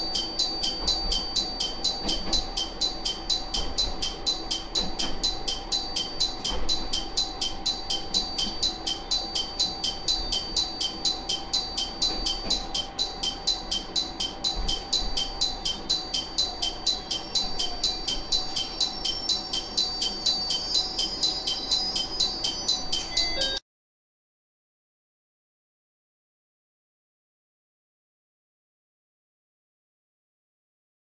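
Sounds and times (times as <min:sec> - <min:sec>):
bell-like electronic alarm dinging: 0:00.0 - 0:23.6.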